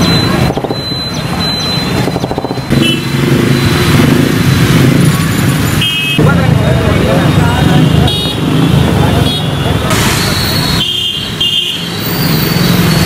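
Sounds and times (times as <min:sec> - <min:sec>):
motorcycle engine running: 0:00.0 - 0:06.8
street traffic noise: 0:00.0 - 0:13.0.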